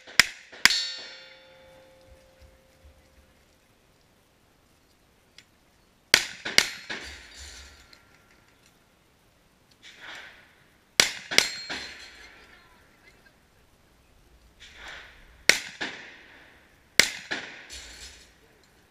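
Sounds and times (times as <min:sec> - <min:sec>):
steel targets ringing: 0:00.6 - 0:02.7, 0:06.2 - 0:08.0, 0:11.0 - 0:12.5, 0:17.0 - 0:18.4
gunshots: 0:06.1 - 0:07.6, 0:11.0 - 0:12.5, 0:14.6 - 0:18.4.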